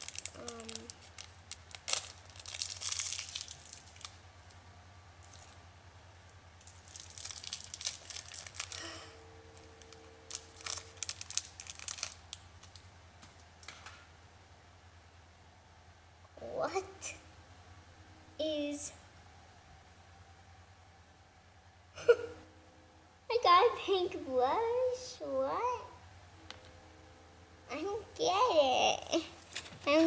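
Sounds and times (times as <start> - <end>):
plastic wrapper crinkling: 0.0 - 4.6, 5.2 - 5.6, 6.6 - 13.8, 29.4 - 30.0.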